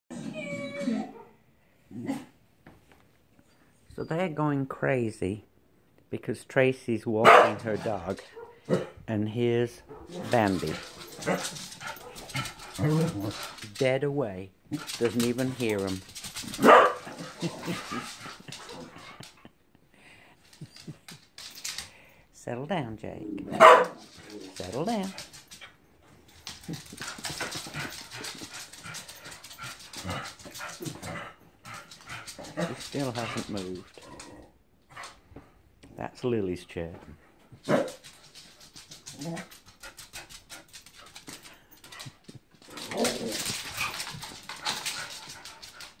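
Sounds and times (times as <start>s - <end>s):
dog whimpering: 0.1s - 1.2s
dog barking: 7.2s - 7.6s, 8.3s - 9.0s, 16.6s - 17.2s, 23.5s - 24.0s, 37.7s - 38.0s.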